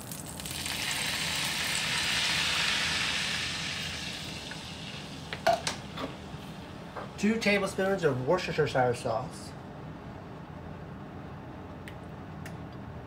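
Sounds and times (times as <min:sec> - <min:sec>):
liquid hissing in hot frying pan: 0:00.0 - 0:06.3.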